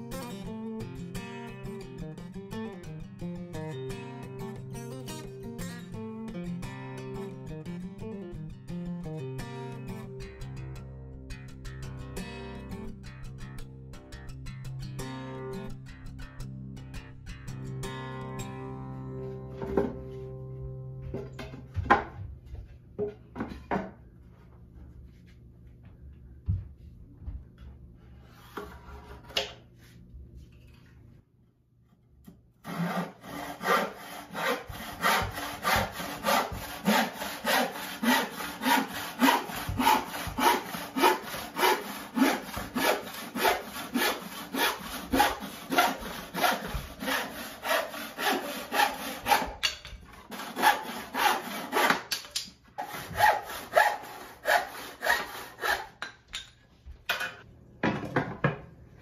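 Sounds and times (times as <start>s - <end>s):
handsaw cutting wood: 32.6s - 52.2s, 52.8s - 56.0s.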